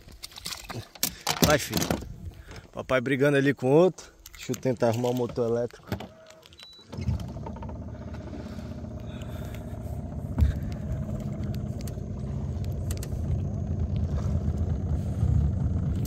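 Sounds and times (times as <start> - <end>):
boat motor running: 6.1 - 16.0.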